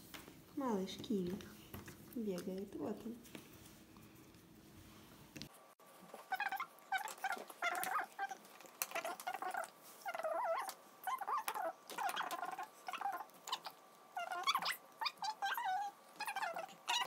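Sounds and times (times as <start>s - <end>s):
small animal whining: 6.0s - 17.0s.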